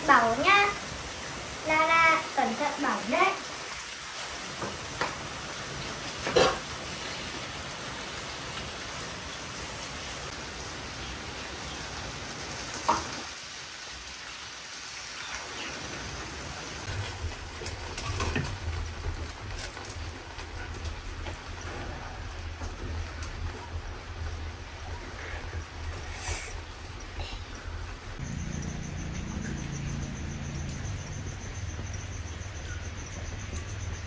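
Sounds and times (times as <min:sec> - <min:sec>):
steady rain: 0:00.0 - 0:34.0
low rumble: 0:28.0 - 0:34.0.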